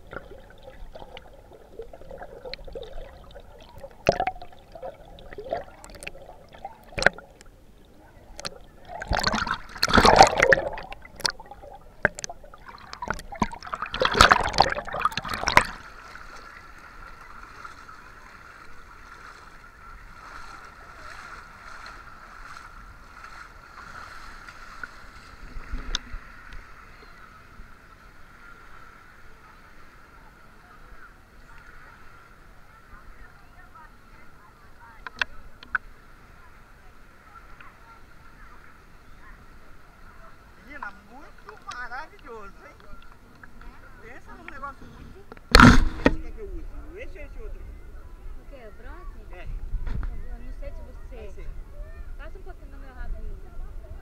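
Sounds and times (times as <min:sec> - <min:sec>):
water splashing and sloshing: 0:00.0 - 0:47.1
muffled underwater knocks and clicks: 0:03.7 - 0:07.5, 0:08.3 - 0:15.8, 0:45.3 - 0:46.3.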